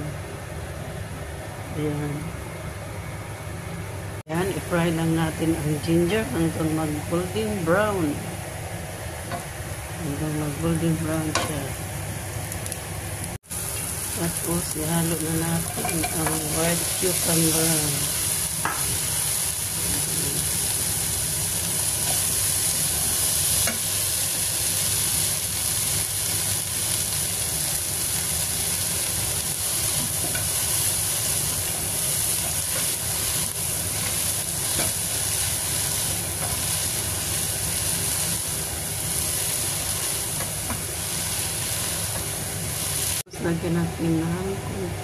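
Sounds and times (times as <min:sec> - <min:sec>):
food sizzling in a pan: 0:08.0 - 0:43.3
stirring strokes in a pan: 0:18.0 - 0:43.3.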